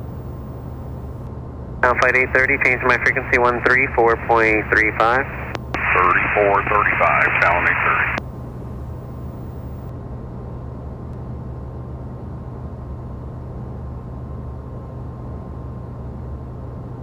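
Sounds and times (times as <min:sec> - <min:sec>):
faint steady tone: 0:00.0 - 0:09.9
low jet engine hum: 0:00.0 - 0:17.0.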